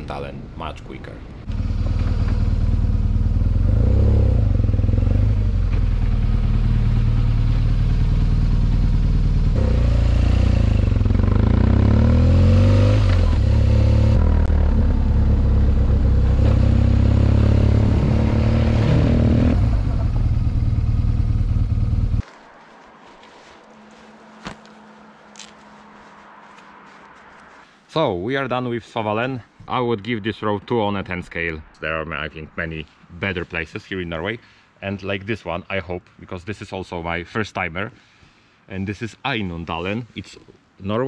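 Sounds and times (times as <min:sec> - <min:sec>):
motorcycle engine running: 0:01.5 - 0:22.2.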